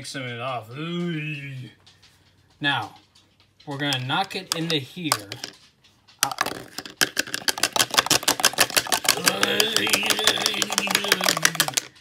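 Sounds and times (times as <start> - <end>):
spoon tapping on container: 3.8 - 5.6, 6.2 - 12.0.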